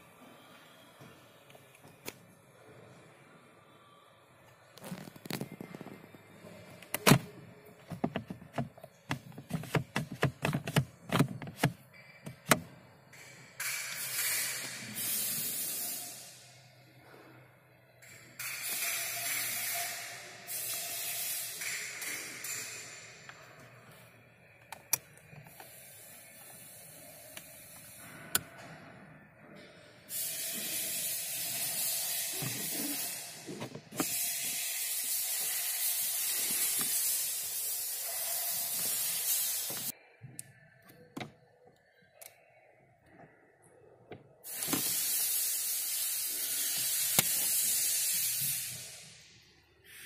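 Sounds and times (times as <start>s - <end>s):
loud even hiss: 44.5s - 49.3s.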